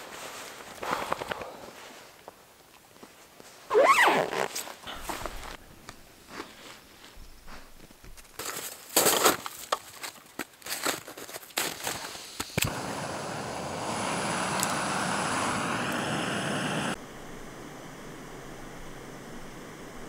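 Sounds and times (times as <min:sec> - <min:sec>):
camping stove burner hissing: 0:11.6 - 0:20.0.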